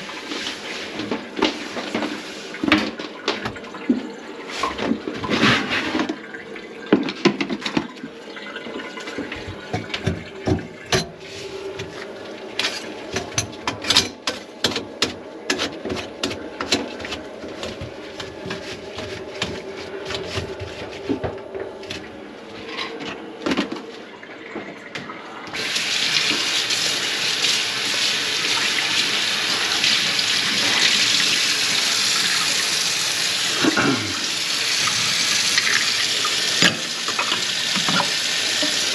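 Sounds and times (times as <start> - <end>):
knocks and clatter at sink: 1.0 - 4.1, 6.9 - 8.0, 9.1 - 11.2
faucet water running into sink: 5.8 - 12.1, 24.2 - 38.9.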